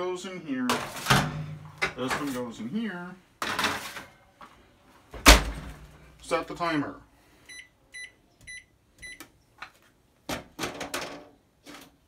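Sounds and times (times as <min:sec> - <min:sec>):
microwave keypad beeps: 0:07.5 - 0:09.2.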